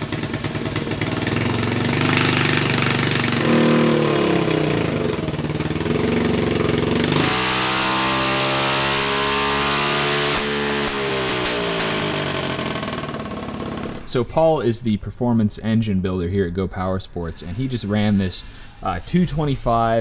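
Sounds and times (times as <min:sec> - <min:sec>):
single-cylinder engine revving: 0:00.0 - 0:14.1.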